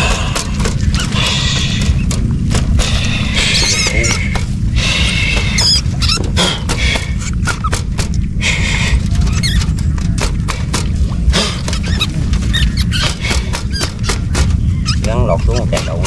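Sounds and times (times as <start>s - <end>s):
rat traps clicking and knocking: 0.0s - 8.3s, 9.1s - 16.0s
low rumble: 0.0s - 16.0s
rats squeaking: 0.0s - 16.0s.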